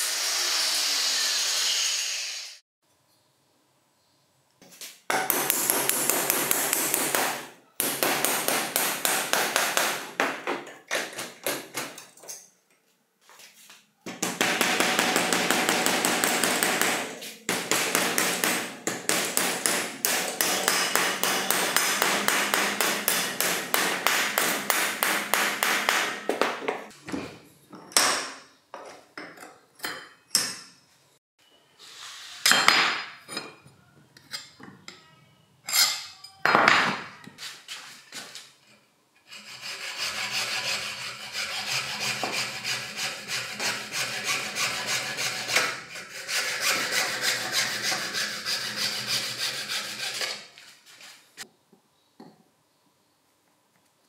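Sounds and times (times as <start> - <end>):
hacksaw cutting plastic: 39.2 - 50.6.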